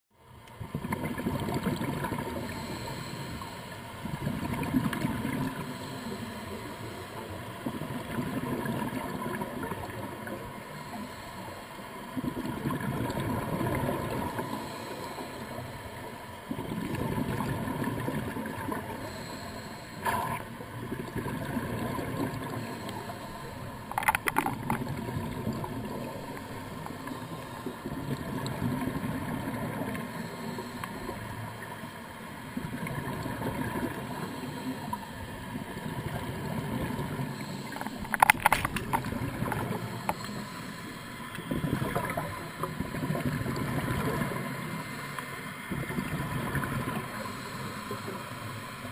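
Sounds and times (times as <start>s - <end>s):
diver breathing through regulator: 2.2s - 4.0s, 5.4s - 7.3s, 10.7s - 11.9s, 14.0s - 16.2s, 18.7s - 20.6s, 21.9s - 27.9s, 29.7s - 31.5s, 37.1s - 42.6s, 46.9s - 48.8s.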